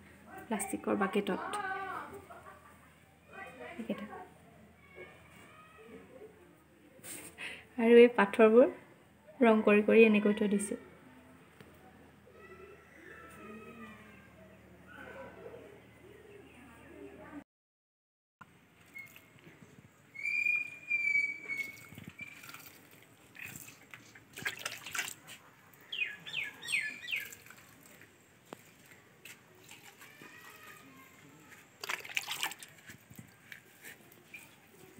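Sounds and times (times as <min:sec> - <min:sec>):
birds chirping: 0:20.0 - 0:23.6, 0:25.7 - 0:28.6
water splashing onto soil: 0:21.5 - 0:25.4, 0:26.9 - 0:30.8, 0:31.8 - 0:33.3.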